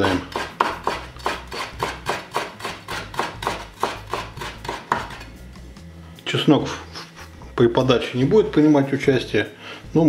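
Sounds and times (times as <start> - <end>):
knife chopping on wooden board: 0.0 - 5.3.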